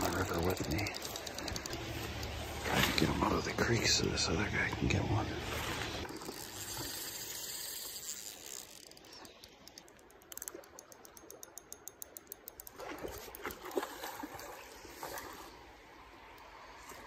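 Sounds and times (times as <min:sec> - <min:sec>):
fishing reel clicking: 0:00.0 - 0:02.3, 0:06.0 - 0:13.4.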